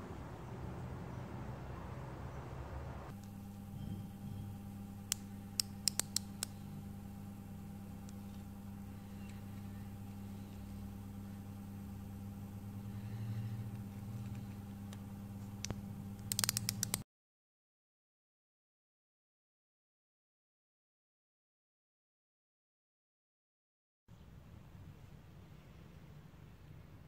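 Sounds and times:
steady low hum: 0.0 - 17.0
micrometer metallic clicks: 5.1 - 6.6, 15.6 - 17.0.

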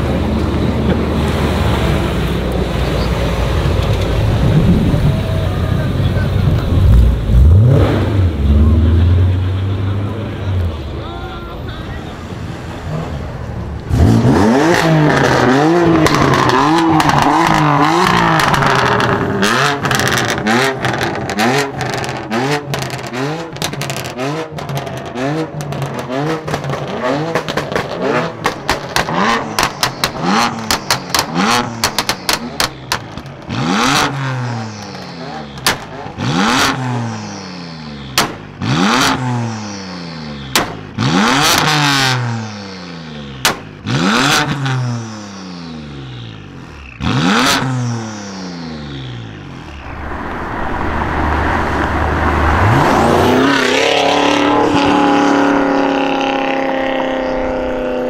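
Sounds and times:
car exhaust revving: 3.4 - 10.5, 12.2 - 58.0
exhaust pops and crackles: 15.2 - 34.1, 35.6 - 36.7, 38.2 - 39.2, 40.5 - 41.7, 43.4 - 43.8.

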